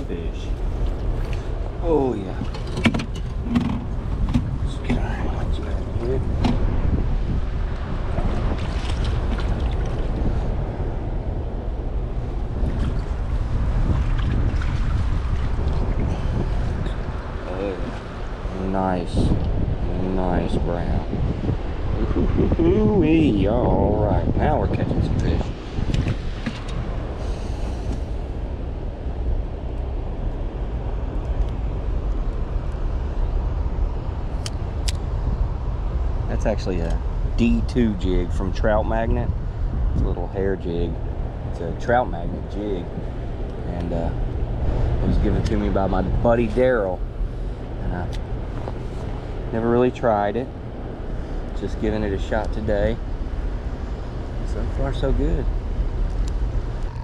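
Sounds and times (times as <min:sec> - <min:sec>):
wind rumbling on microphone: 0:00.0 - 0:57.0
water splashes and drips: 0:08.4 - 0:10.1.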